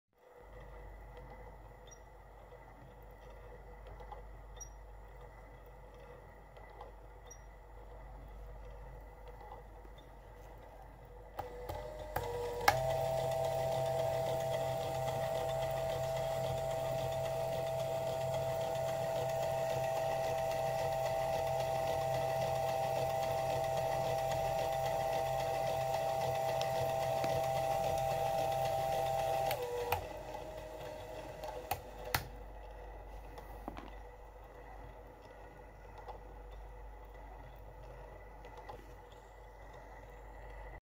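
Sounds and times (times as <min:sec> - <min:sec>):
small motor whirring hum: 0:00.2 - 0:40.8
mechanism clicks: 0:00.3 - 0:11.8.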